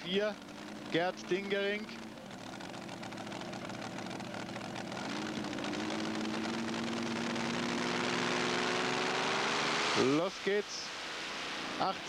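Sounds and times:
steady hum rising in pitch: 0.0 - 10.2
engine running: 0.0 - 12.0.

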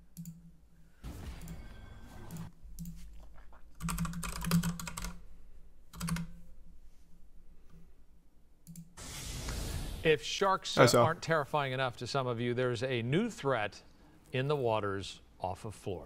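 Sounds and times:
typing on computer keyboard: 3.8 - 5.2, 5.9 - 6.4.

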